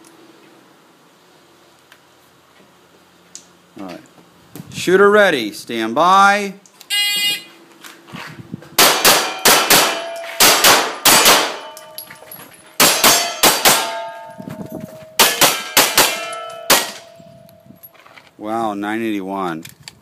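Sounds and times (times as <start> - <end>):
handgun firing rapid shots: 8.8 - 11.8, 12.8 - 14.0, 15.2 - 17.0
metallic ringing: 9.2 - 10.5, 11.5 - 18.0.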